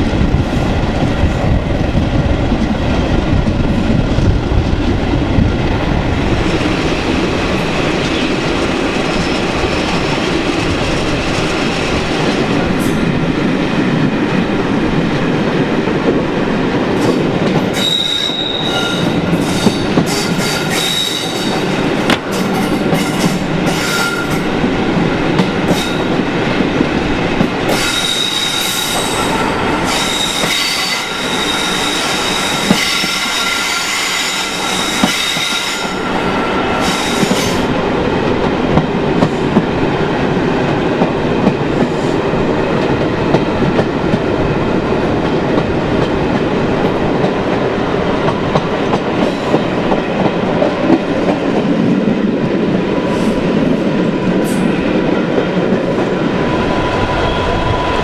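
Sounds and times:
train wheels rumbling on rails: 0:00.0 - 0:58.0
high wheel squeal: 0:17.8 - 0:21.5, 0:27.8 - 0:37.6.

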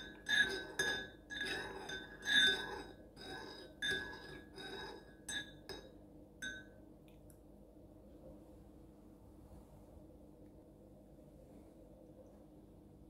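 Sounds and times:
teaspoon clinking in ceramic cup: 0:00.0 - 0:02.9, 0:03.8 - 0:06.8.

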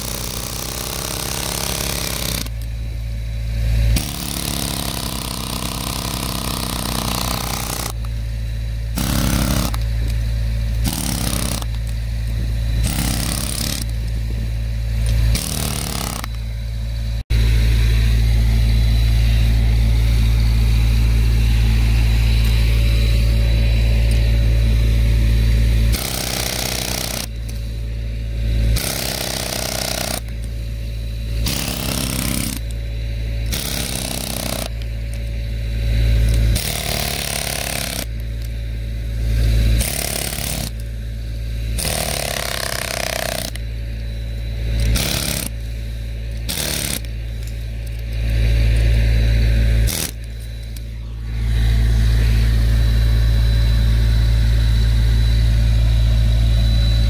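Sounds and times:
air hammer chiselling: 0:00.0 - 0:02.7, 0:03.6 - 0:08.1, 0:08.9 - 0:16.5, 0:25.9 - 0:27.8, 0:28.7 - 0:30.7, 0:31.3 - 0:32.8, 0:33.4 - 0:35.2, 0:36.2 - 0:38.5, 0:39.1 - 0:40.9, 0:41.6 - 0:43.7, 0:44.7 - 0:45.7, 0:46.3 - 0:48.9, 0:49.8 - 0:51.4
steady low hum: 0:00.0 - 0:57.0.

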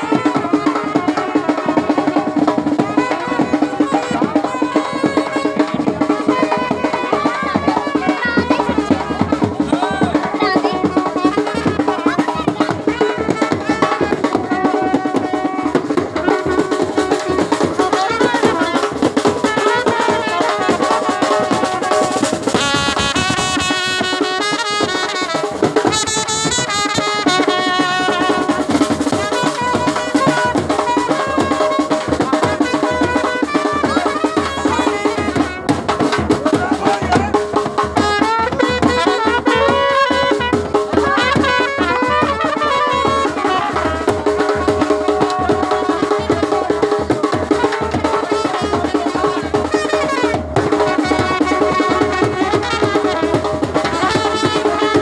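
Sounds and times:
drum beaten with sticks: 0:00.0 - 0:55.0
trumpets playing melody: 0:00.0 - 0:55.0.

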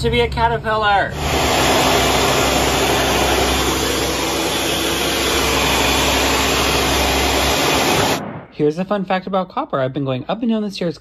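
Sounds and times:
appliance motor rushing: 0:01.1 - 0:08.2.

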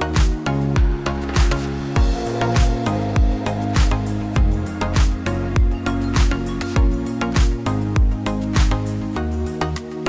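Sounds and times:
sustained chords: 0:01.7 - 0:07.3.

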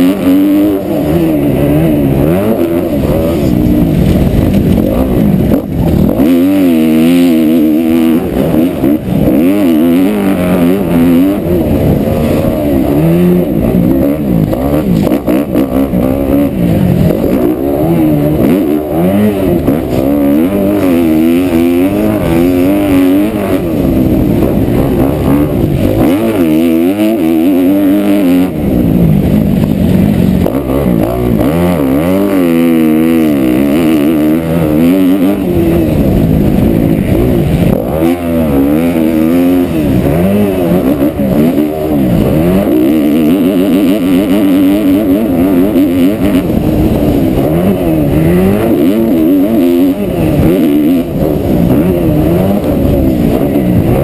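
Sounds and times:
motorcycle engine revving: 0:00.0 - 0:54.0.

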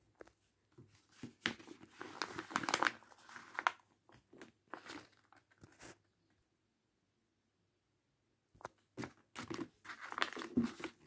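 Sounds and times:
paper crinkling and rustling: 0:00.2 - 0:06.1, 0:09.0 - 0:11.0.

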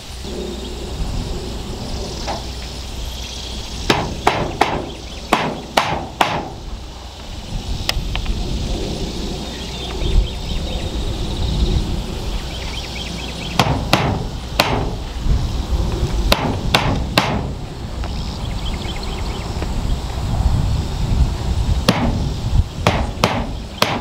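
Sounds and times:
hammer blows on metal: 0:03.9 - 0:06.6, 0:13.6 - 0:15.0, 0:16.3 - 0:17.6, 0:21.8 - 0:24.0.

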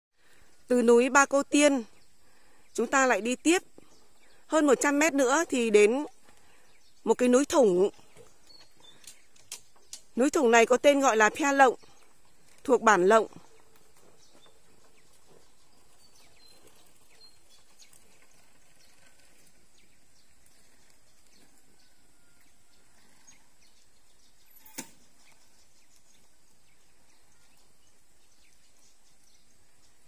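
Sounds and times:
steady low hiss: 0:23.5 - 0:30.0.

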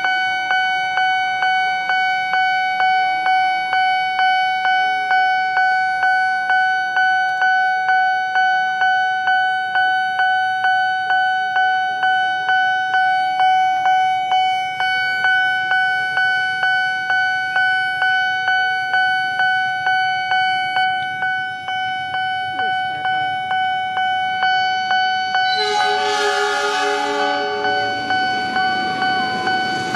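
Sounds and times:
level crossing bell ringing: 0:22.2 - 0:29.9.

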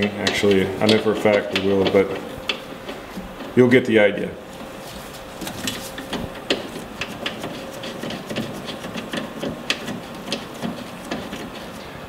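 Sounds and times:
gloved hands rustling: 0:04.4 - 0:11.9.

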